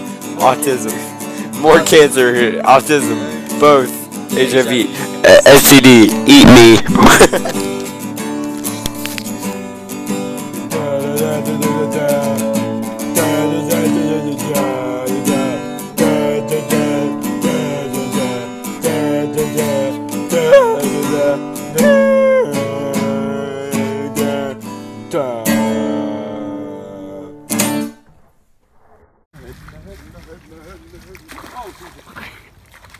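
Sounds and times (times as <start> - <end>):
guitar chords strummed: 0.0 - 28.0
sliding melody: 7.4 - 28.0.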